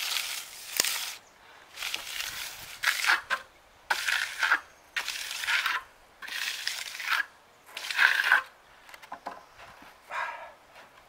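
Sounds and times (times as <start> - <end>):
groover scraping wet concrete: 1.8 - 8.5.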